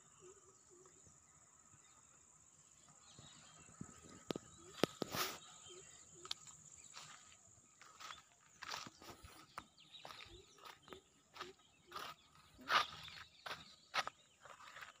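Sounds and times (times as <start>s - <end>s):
footsteps on grass and gravel: 4.0s - 15.0s.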